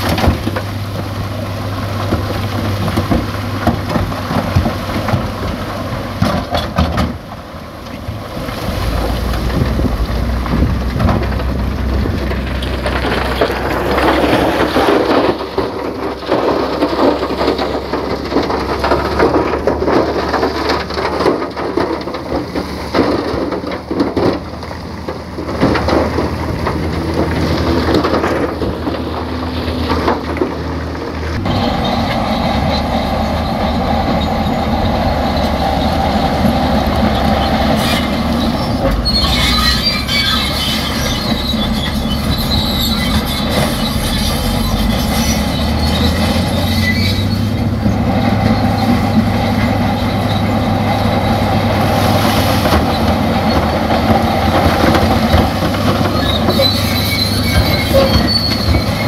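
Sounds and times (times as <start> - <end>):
diesel engine under load: 0.0 - 59.0
rock and earth clattering: 0.0 - 59.0
metallic squealing and clanking: 31.4 - 59.0.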